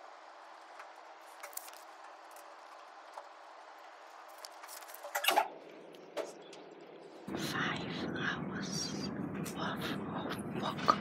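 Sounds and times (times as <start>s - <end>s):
paper notes clicking and rustling: 0.6s - 5.5s.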